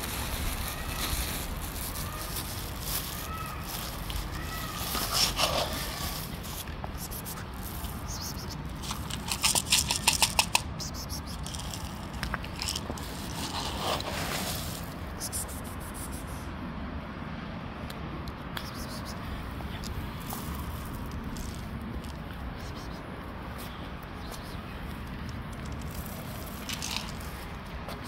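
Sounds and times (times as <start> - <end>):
plastic packaging crinkling: 0.0 - 6.5, 11.4 - 15.0, 25.6 - 27.6.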